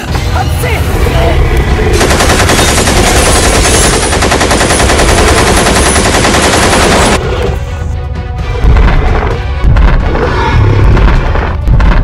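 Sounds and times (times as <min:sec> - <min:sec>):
machine-gun fire: 0:02.0 - 0:07.2.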